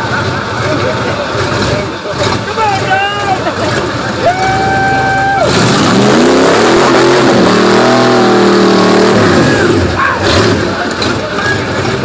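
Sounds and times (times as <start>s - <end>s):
engine revving hard: 3.6s - 12.0s.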